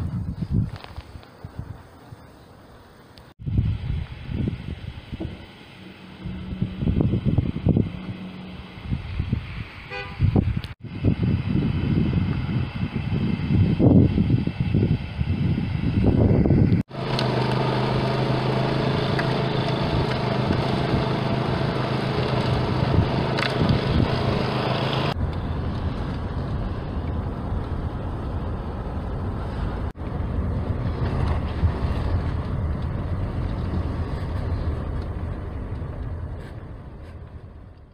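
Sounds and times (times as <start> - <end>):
car engine and road noise: 0.0 - 37.9
snowblower engine running: 16.9 - 25.2.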